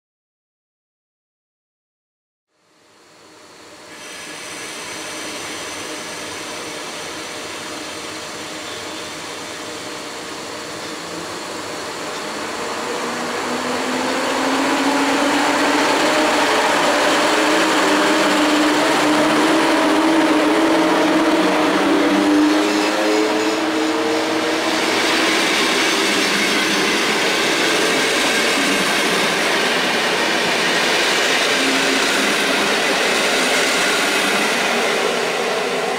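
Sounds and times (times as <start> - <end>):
electric train motors humming: 3.1 - 35.9.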